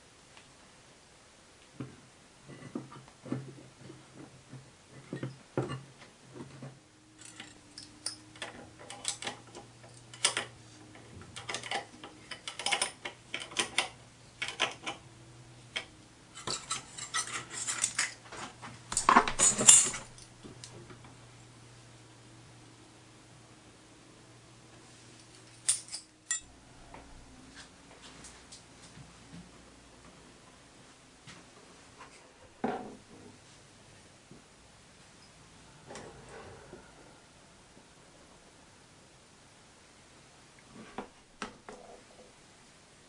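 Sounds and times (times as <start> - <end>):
metallic clinks of tools: 25.4 - 26.5.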